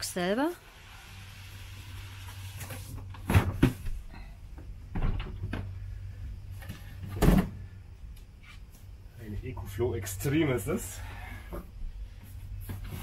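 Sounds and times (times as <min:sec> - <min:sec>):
box thumping down: 0:03.2 - 0:04.0.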